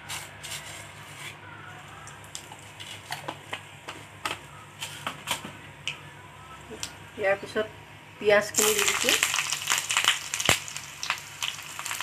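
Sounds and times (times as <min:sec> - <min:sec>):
seeds sizzling in hot oil: 0:08.5 - 0:12.0
seeds popping and crackling: 0:08.6 - 0:12.0.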